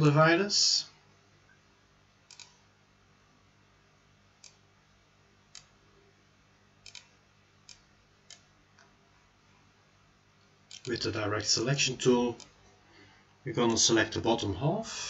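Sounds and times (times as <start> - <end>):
low steady hum: 0.0 - 15.0
faint computer mouse clicks: 2.3 - 2.6, 6.8 - 7.1.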